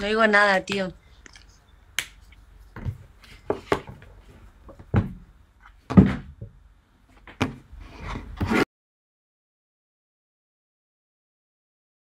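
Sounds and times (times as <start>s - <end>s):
knocks and thumps: 2.8s - 6.6s.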